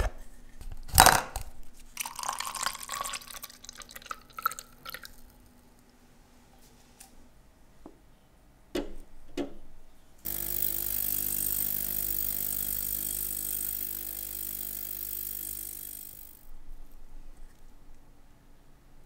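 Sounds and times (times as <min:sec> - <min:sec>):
ultrasonic cleaner hissing: 0:10.3 - 0:16.4.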